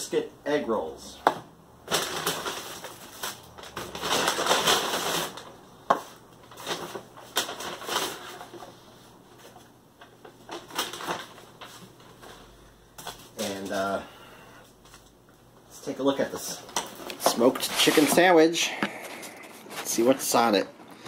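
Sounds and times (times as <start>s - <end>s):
paper bag rustling: 1.8s - 14.0s, 16.2s - 20.6s.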